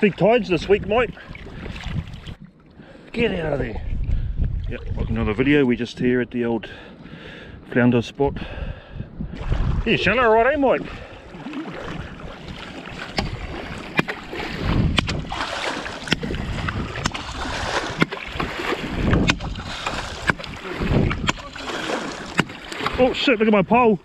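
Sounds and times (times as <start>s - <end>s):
water sloshing and splashing: 0.0s - 5.6s, 9.3s - 24.0s.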